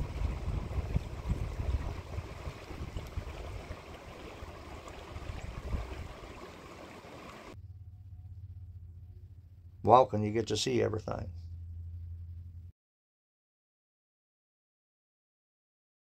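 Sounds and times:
low rumble: 0.0s - 6.2s, 7.4s - 12.7s
creek rushing over stones: 0.0s - 7.6s.

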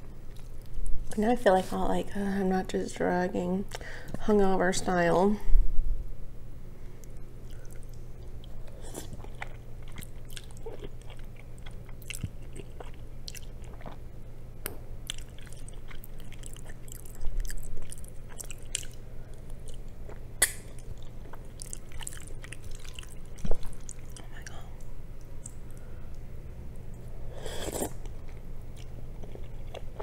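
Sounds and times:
low hum: 0.0s - 10.1s
wet chewing: 7.4s - 14.0s, 15.0s - 25.9s.

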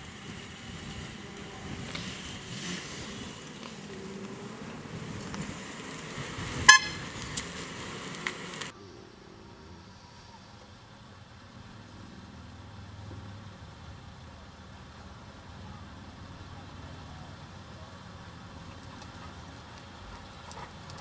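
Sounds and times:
outdoor hiss: 0.0s - 20.7s
car horn toot: 6.6s - 7.1s.

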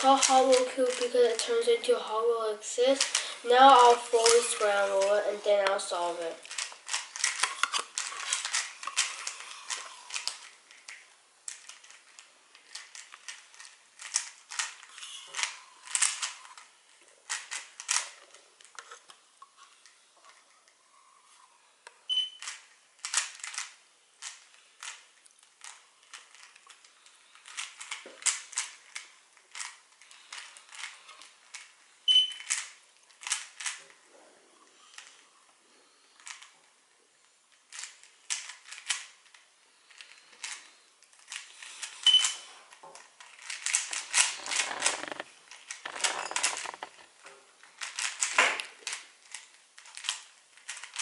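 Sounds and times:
plastic puzzle cube clicking: 0.0s - 1.5s, 3.0s - 3.3s, 6.4s - 16.7s, 17.3s - 19.1s, 22.1s - 25.0s, 25.6s - 33.9s, 36.2s - 36.5s, 37.7s - 39.2s, 39.9s - 40.6s, 43.0s - 47.0s, 47.8s - 51.0s.

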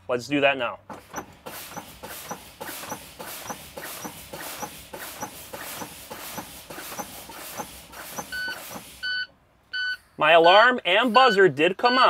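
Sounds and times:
air brakes hissing puffs: 0.9s - 9.2s.

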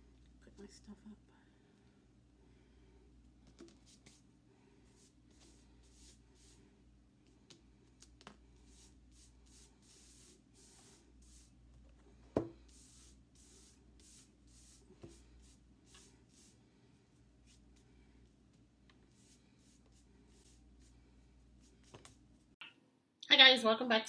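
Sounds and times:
hand brushing glitter on board: 3.6s - 6.7s, 7.9s - 11.7s, 12.6s - 16.6s, 19.0s - 22.2s.

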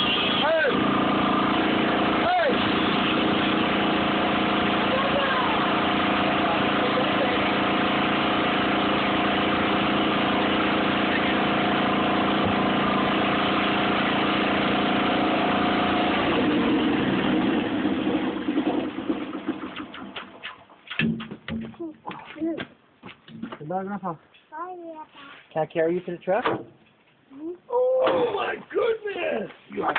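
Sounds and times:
tractor engine idling: 0.0s - 17.6s.

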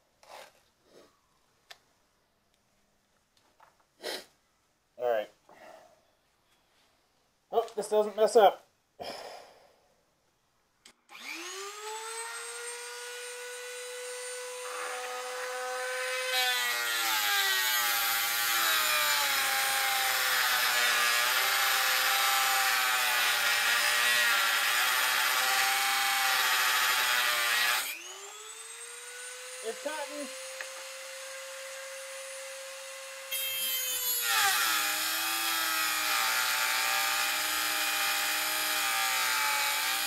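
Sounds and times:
rotary tool whining: 11.1s - 40.0s.

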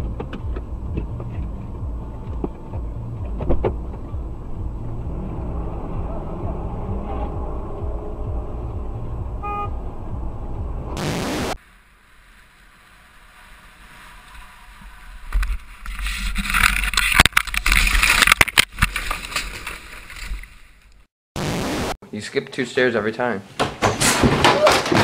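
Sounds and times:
traffic rumble inside car: 0.0s - 11.0s
knocks and clattering on wood: 23.6s - 25.0s.

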